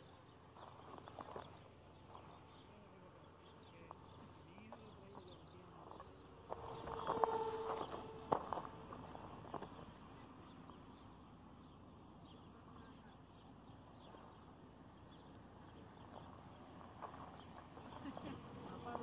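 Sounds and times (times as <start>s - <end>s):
distant birds chirping: 0.0s - 19.0s.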